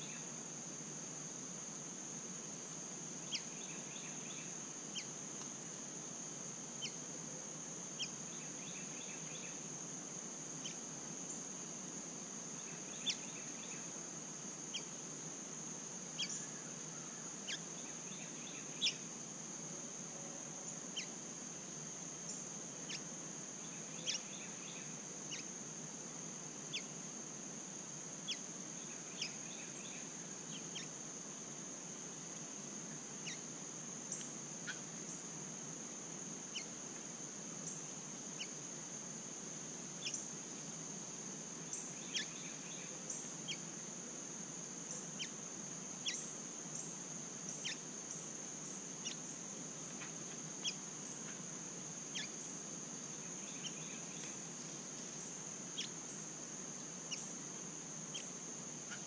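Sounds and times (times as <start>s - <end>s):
songbird chip notes and trills: 23.7s - 25.5s, 33.2s - 33.5s, 41.6s - 43.7s
high-pitched insect drone: 44.9s - 47.9s, 50.0s - 54.4s.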